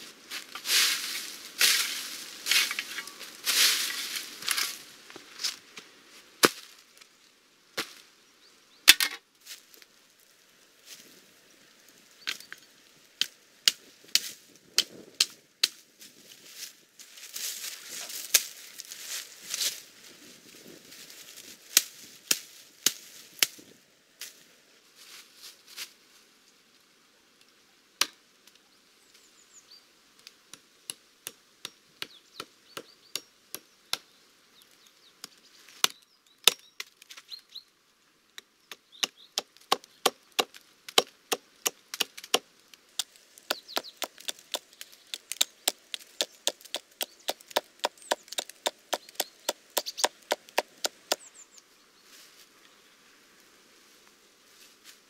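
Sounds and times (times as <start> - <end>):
hatchet chopping brush: 38.7 - 51.3.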